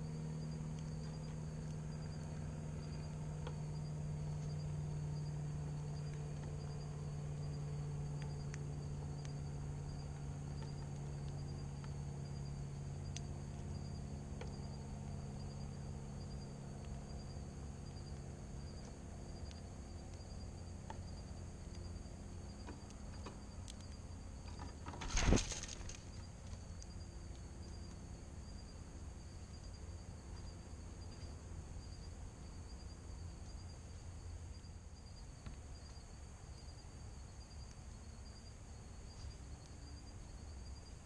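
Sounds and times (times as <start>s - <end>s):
steady low hum: 0.0s - 41.0s
bird wings fluttering: 24.5s - 26.2s.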